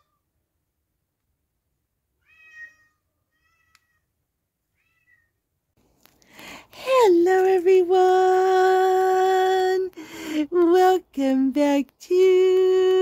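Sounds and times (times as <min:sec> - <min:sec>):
cat meowing: 0:02.2 - 0:04.1, 0:04.7 - 0:05.4.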